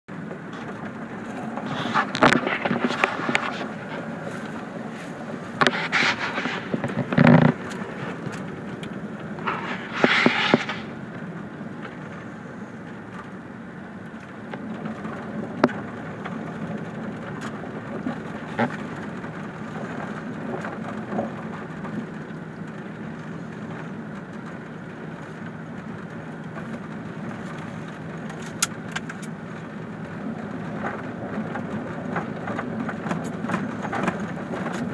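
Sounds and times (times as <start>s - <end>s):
engine and tyre rumble on gravel: 0.1s - 34.9s
loud clatters and knocks: 0.4s - 10.9s.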